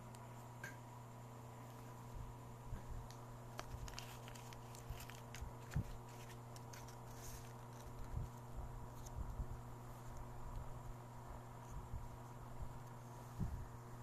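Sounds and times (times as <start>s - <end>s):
steady low hum: 0.0s - 14.0s
small clicks and handling noises: 3.0s - 9.4s, 10.0s - 10.7s.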